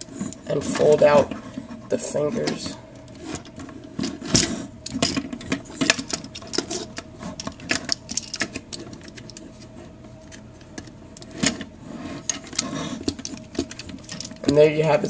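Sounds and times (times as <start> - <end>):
plastic toy parts clicking and snapping: 4.9 - 9.4.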